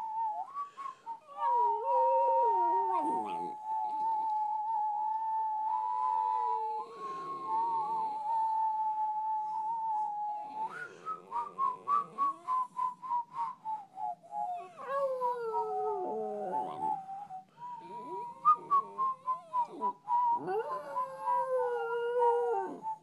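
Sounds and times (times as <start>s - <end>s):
dog howling: 0.0s - 4.5s, 14.4s - 23.0s.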